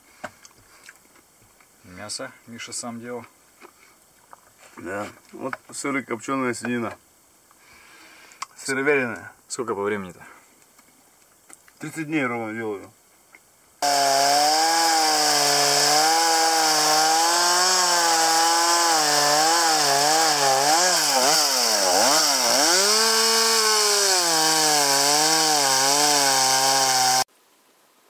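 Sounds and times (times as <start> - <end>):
chainsaw cutting log: 13.8 - 27.3.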